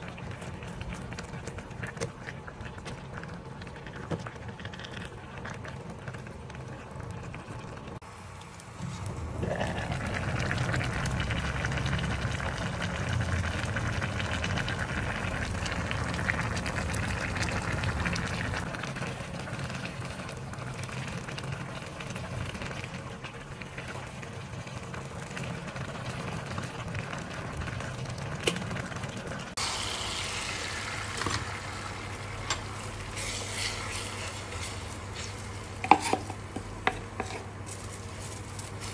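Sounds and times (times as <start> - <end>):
broth bubbling in pot: 0.0 - 38.9.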